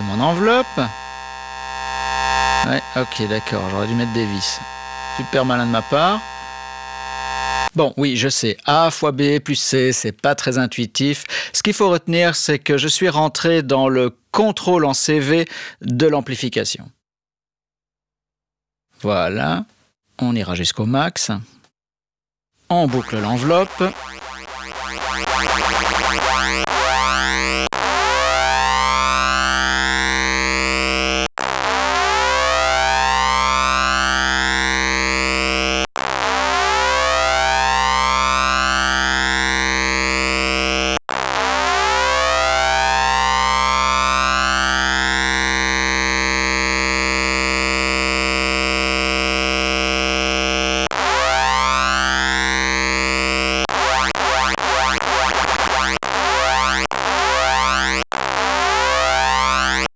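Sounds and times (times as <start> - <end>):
buzzy bit-crushed synthesizer tone: 0.0 - 7.7, 22.8 - 59.9.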